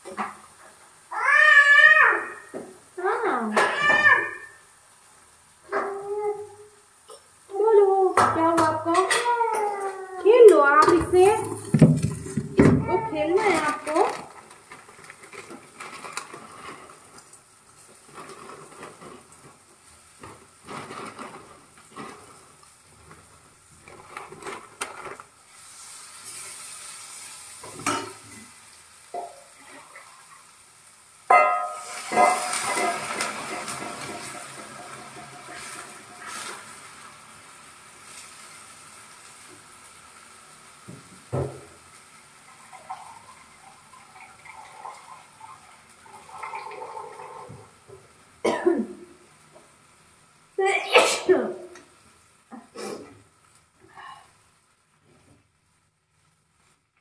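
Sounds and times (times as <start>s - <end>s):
water sizzling in hot pan: 0.0s - 57.0s
faint crinkling: 7.8s - 25.4s
utensil knocks: 10.5s - 13.0s
person coughing: 48.5s - 49.0s, 51.0s - 51.3s.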